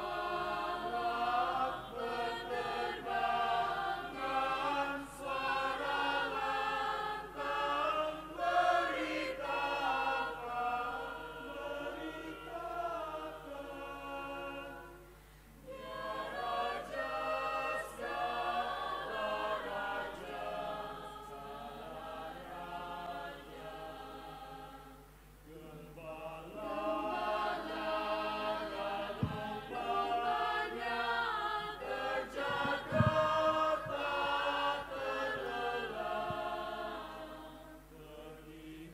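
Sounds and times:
mixed choir singing: 0.0 - 38.9
low thumps: 29.1 - 29.8, 32.3 - 34.2.

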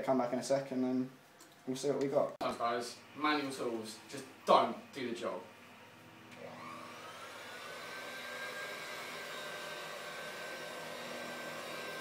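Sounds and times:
electric hand mixer whirring: 6.1 - 12.0.

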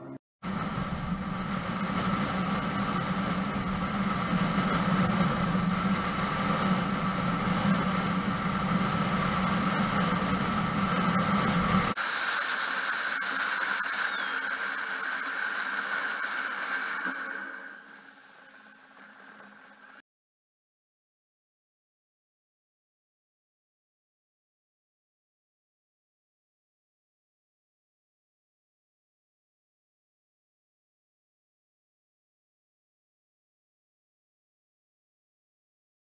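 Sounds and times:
thin high hiss: 12.0 - 20.0.

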